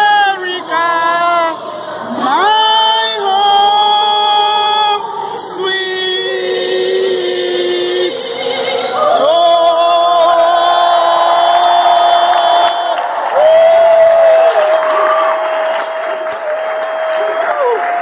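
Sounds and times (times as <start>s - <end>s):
person singing over loudspeakers: 0.0s - 17.8s.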